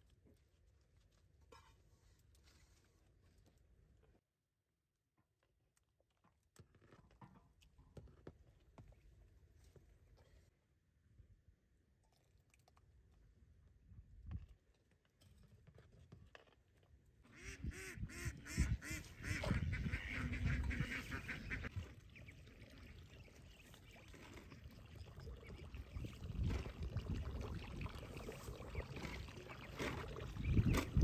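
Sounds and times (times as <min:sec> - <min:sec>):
ducks calling: 0:17.3 - 0:24.2.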